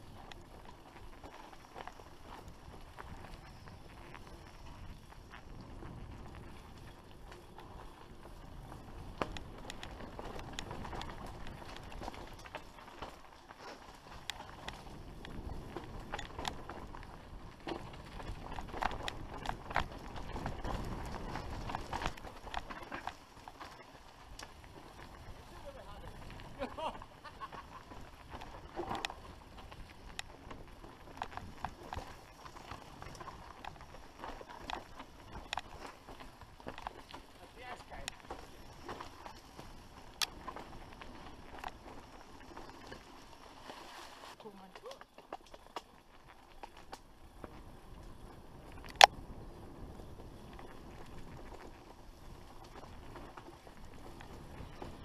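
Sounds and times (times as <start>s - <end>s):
bike clicking and rattling: 0.0s - 55.0s
bike tyres on dirt trail: 0.0s - 55.0s.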